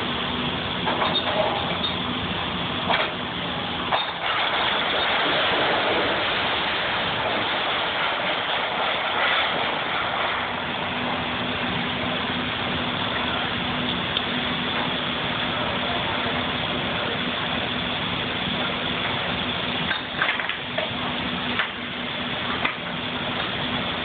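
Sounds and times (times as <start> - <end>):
excavator engine hum: 0.0 - 24.0
falling timber and sheet metal: 3.9 - 11.2.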